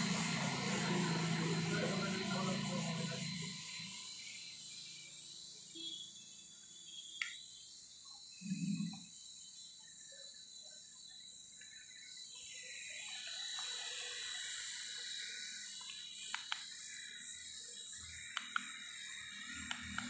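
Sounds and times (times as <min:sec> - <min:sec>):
toy helicopter whine: 0:00.0 - 0:20.0
sharp ticks: 0:15.8 - 0:16.7, 0:18.3 - 0:18.8, 0:19.6 - 0:20.0.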